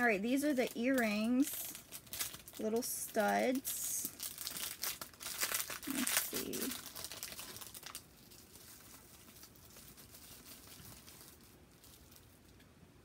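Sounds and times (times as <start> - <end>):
plastic bag crinkling: 0.0 - 12.7.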